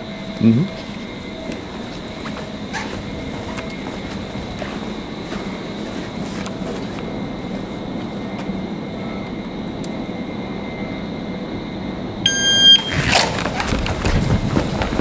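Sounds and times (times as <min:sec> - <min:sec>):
faint high whine: 0:00.0 - 0:15.0
shot timer beep: 0:12.3 - 0:12.9.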